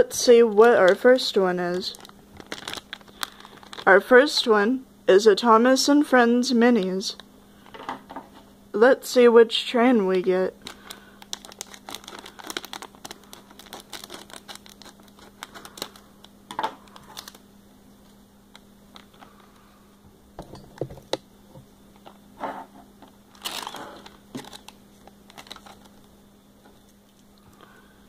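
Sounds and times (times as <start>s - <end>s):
plastic packaging crinkling: 0.3s - 4.0s, 10.5s - 17.5s, 18.5s - 19.6s, 23.3s - 26.2s.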